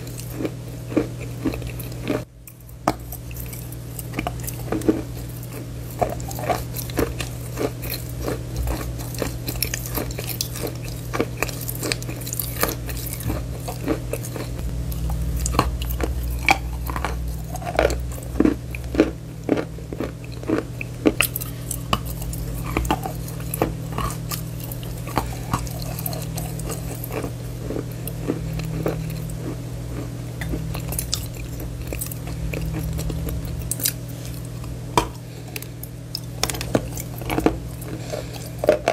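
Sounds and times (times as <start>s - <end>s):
chewing chalk crunches: 0.0s - 38.9s
steady low hum: 0.0s - 38.9s.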